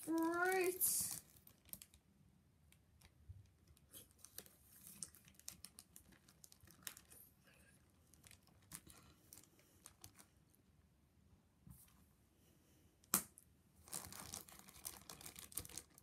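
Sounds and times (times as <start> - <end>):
plastic bag crinkling: 0.0 - 2.0, 4.2 - 7.2, 8.1 - 10.3, 13.8 - 16.0.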